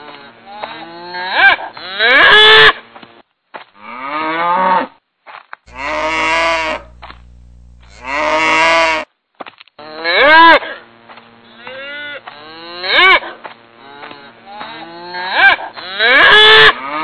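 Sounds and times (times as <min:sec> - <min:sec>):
cows mooing: 0:05.7 - 0:09.1.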